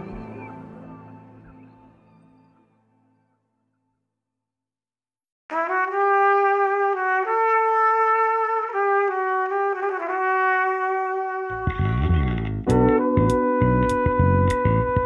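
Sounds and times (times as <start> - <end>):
brass melody of long notes: 5.5 - 15.0.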